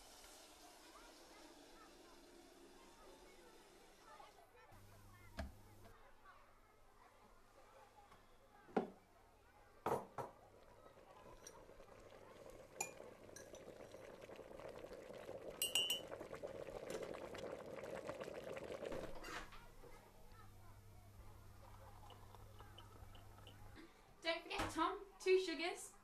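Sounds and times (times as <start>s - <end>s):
electric kettle heating: 0.0s - 6.0s, 10.5s - 23.9s
ceramic mugs knocking: 9.9s - 10.4s
teaspoon clinking on glass: 15.6s - 16.0s.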